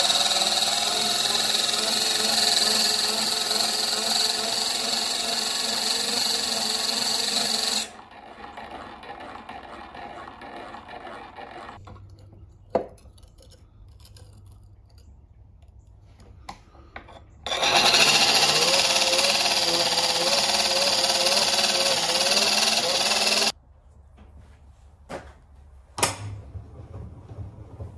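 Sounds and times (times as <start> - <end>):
electric grinder whining: 0.0 - 11.8, 17.5 - 23.6.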